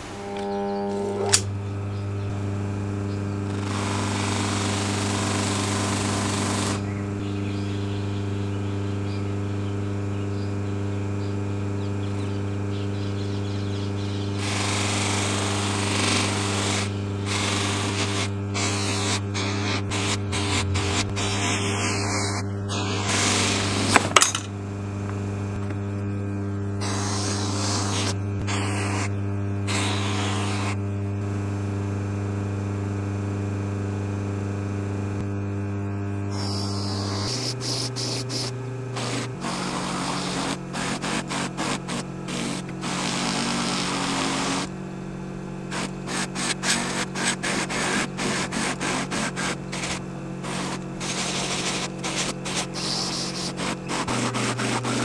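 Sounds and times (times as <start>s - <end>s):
buffing wheel motor hum: 0.0s - 55.0s
metal polishing hiss: 14.7s - 24.4s, 26.8s - 29.1s, 36.3s - 44.7s, 45.7s - 55.0s.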